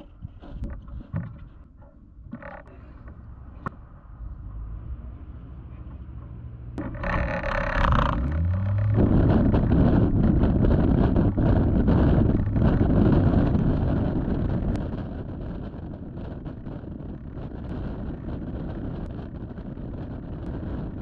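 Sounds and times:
aircraft engine starting: 6.8s - 15.0s.

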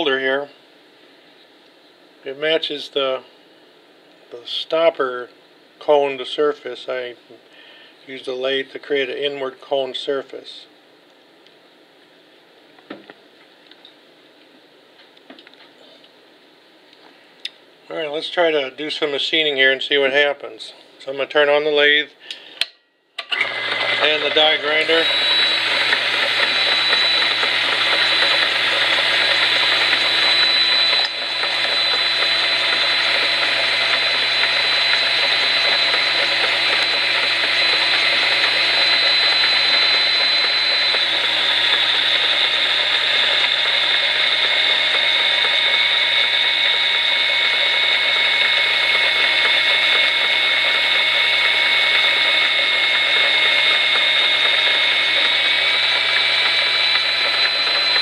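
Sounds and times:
lathe running: 23.2s - 58.0s
rotary tool high whine: 23.2s - 58.0s.

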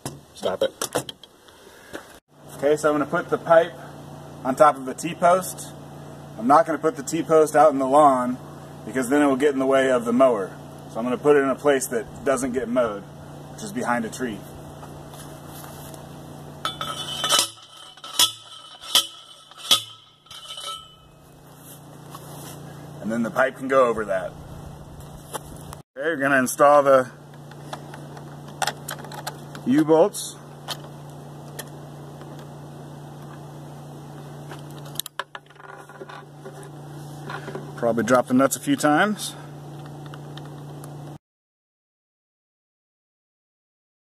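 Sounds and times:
steady low hum: 1.4s - 41.2s
metal post driver clanks: 16.6s - 21.2s
sharp metal clinks: 16.6s - 21.3s.

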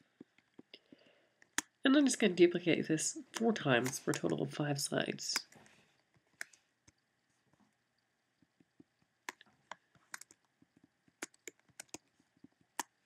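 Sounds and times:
computer keyboard keystrokes: 10.1s - 10.4s, 11.2s - 12.0s.

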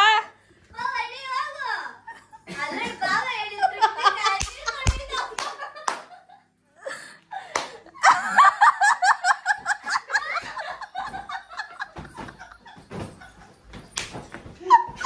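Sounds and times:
person laughing heartily: 5.6s - 13.7s
pillows thudding: 9.5s - 15.0s.

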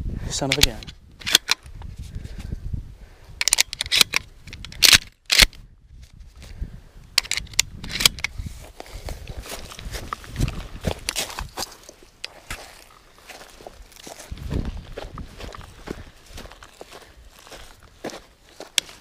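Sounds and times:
footsteps in dry grass: 7.7s - 19.0s.

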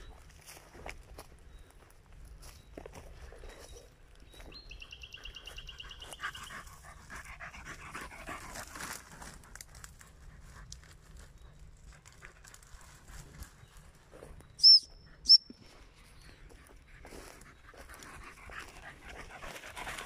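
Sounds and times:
dog panting: 5.2s - 11.2s, 16.3s - 20.0s
twigs and leaves crackling: 8.3s - 14.5s.

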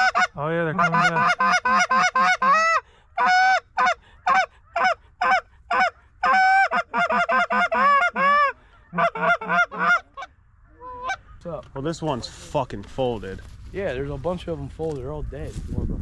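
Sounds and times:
geese honking: 0.0s - 11.6s.

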